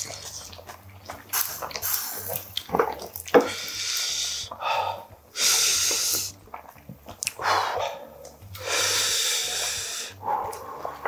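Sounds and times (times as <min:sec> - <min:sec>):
broth bubbling: 0:00.0 - 0:11.0
loud breathy hiss: 0:01.4 - 0:02.4, 0:03.5 - 0:06.4, 0:08.6 - 0:10.8.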